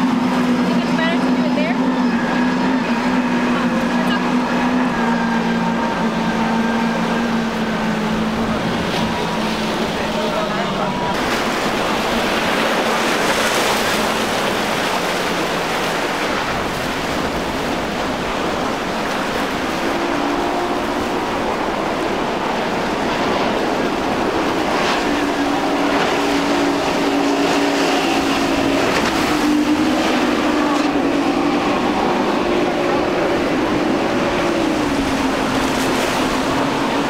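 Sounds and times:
boat wake and surf rushing: 0.0s - 37.0s
outboard engines droning: 0.0s - 37.0s.

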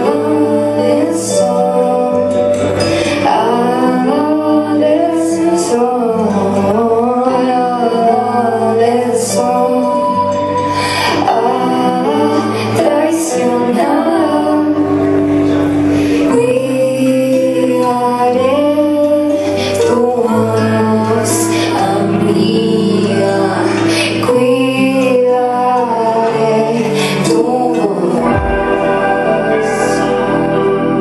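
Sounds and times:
keyboard chords: 0.0s - 31.0s
woman singing: 0.0s - 31.0s
bass line: 21.8s - 31.0s.

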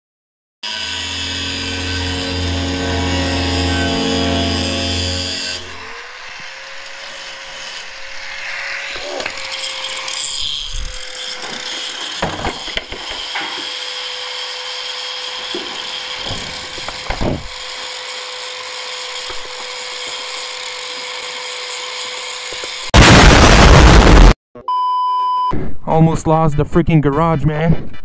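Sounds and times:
steady motor hum: 0.8s - 8.2s
sharp knocks and clatters: 11.4s - 13.8s, 15.5s - 17.5s.

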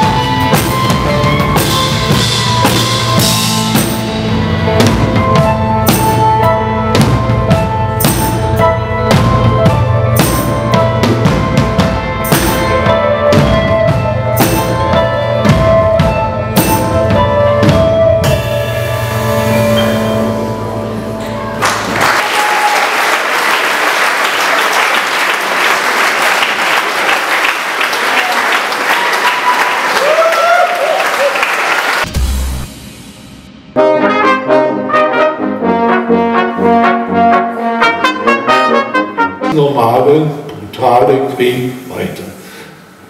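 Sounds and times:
drum kit hits: 0.0s - 22.0s, 32.0s - 34.3s
live band playing: 0.0s - 22.7s, 31.6s - 40.6s
audience applause: 21.6s - 32.1s.

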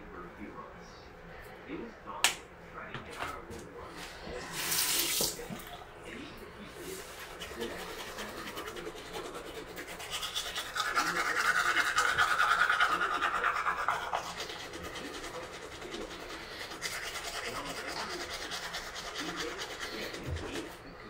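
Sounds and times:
toothbrush scrubbing teeth: 6.7s - 20.9s.

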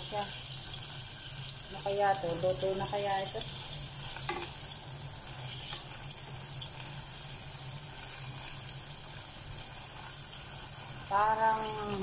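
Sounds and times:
sausages sizzling in fat: 0.0s - 12.0s.

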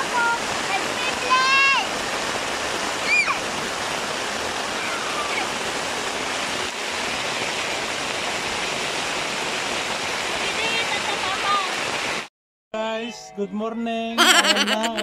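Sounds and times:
rain on a tarpaulin: 0.0s - 12.3s
high voice: 14.2s - 15.0s.

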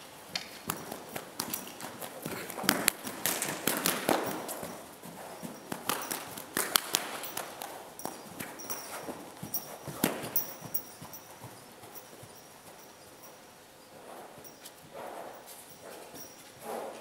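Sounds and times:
horse hoofbeats trotting on sand: 0.0s - 17.0s.

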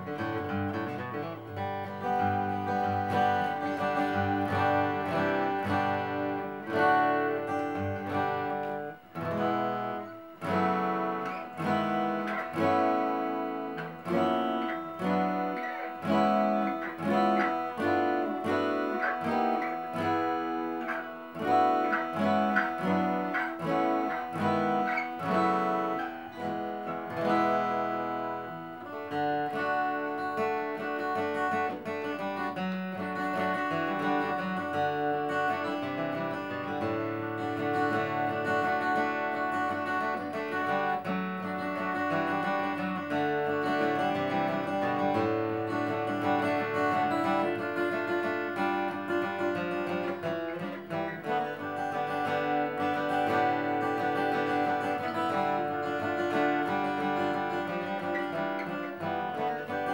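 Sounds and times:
fingerpicked acoustic guitar: 0.0s - 59.9s.

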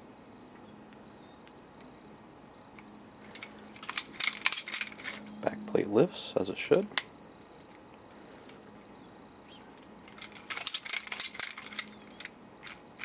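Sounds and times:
metal glove parts clinking: 3.2s - 5.4s, 9.8s - 13.0s.

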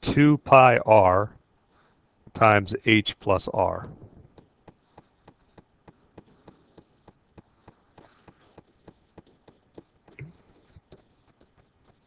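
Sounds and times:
throat or mouth sound: 10.1s - 10.6s.

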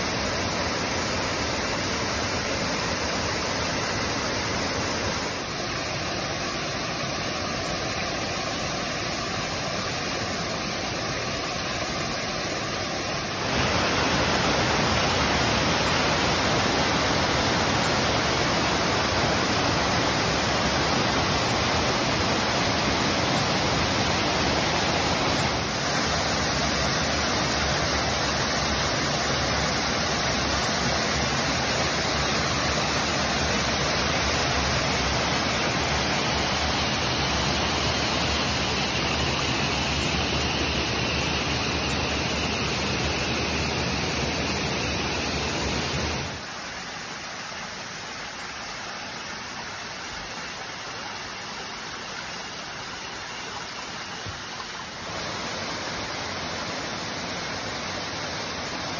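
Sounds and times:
waterfall rushing: 0.0s - 58.9s.

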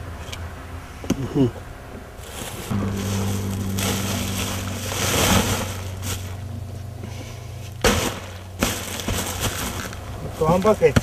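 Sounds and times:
steady low hum: 2.7s - 9.0s.

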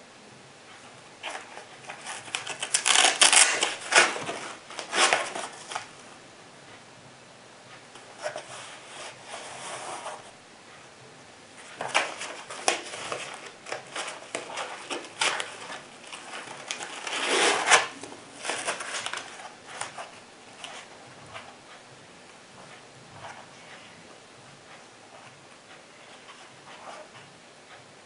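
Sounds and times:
scraping rustle: 11.6s - 21.6s.

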